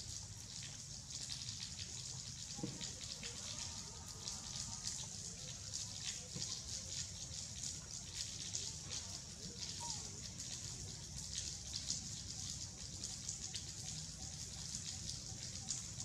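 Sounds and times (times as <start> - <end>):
steady rain hiss: 0.0 - 16.0
raindrop taps: 2.4 - 3.4, 5.9 - 7.2.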